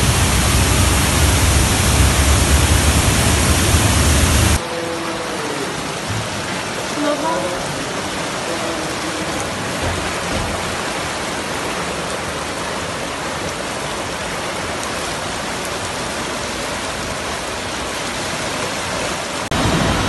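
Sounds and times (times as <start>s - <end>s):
low rumble: 0.0s - 4.6s
floodwater rushing: 0.0s - 20.0s.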